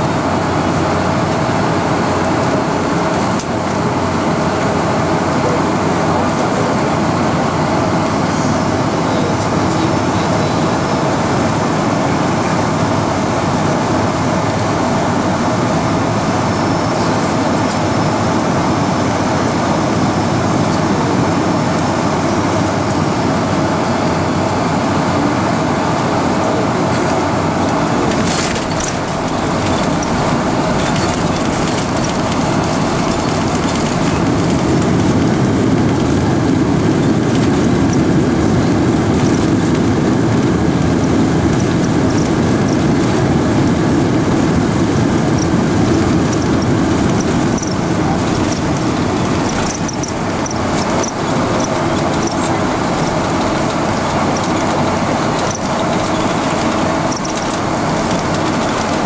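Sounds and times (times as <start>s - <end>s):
airplane cabin roar: 0.0s - 59.0s
faint rattles and clicks: 26.9s - 35.2s, 41.4s - 43.1s, 45.4s - 59.0s.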